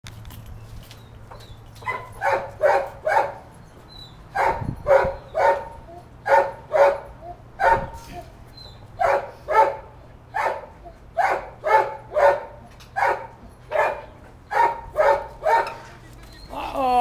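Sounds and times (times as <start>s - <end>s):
dog barking: 1.8s - 3.4s, 4.4s - 8.0s, 9.0s - 15.8s.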